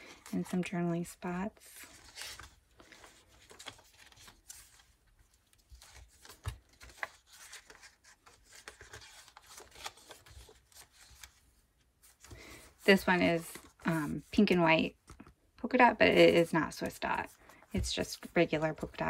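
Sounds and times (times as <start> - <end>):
paper pages rustling: 1.8 - 15.3.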